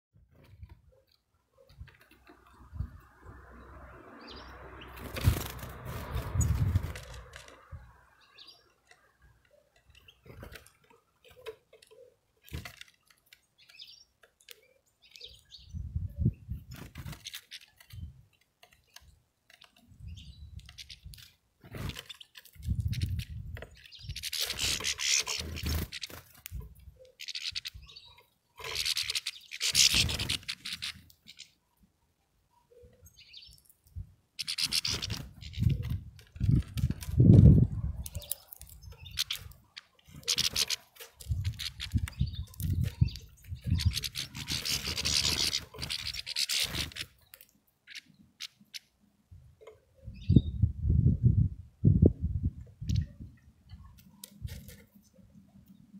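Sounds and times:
bird wing flutters: 0:04.9 - 0:07.7, 0:21.6 - 0:23.4, 0:24.2 - 0:26.7, 0:34.4 - 0:37.6.

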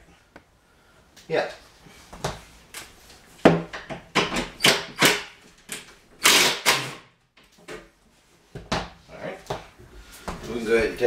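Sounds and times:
impact driver driving screw into wood: 0:04.2 - 0:05.4, 0:06.2 - 0:07.1.

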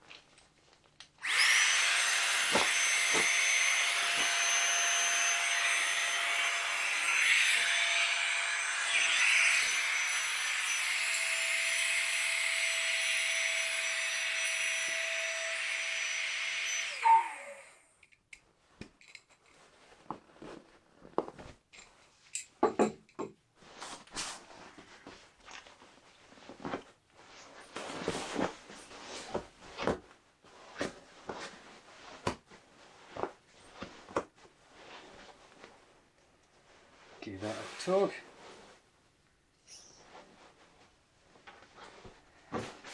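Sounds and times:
nylon fabric rustling: 0:19.4 - 0:22.3, 0:23.6 - 0:39.2.

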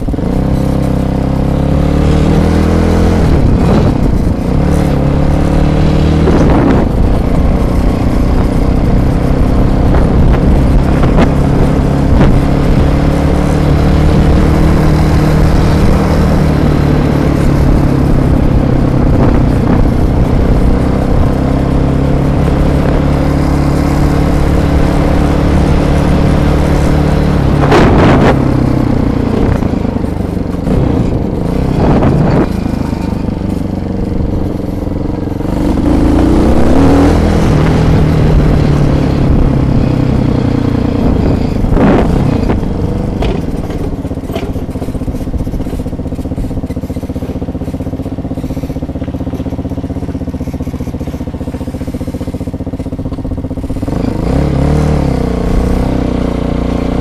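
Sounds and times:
quad bike engine running: 0:00.0 - 0:57.0.

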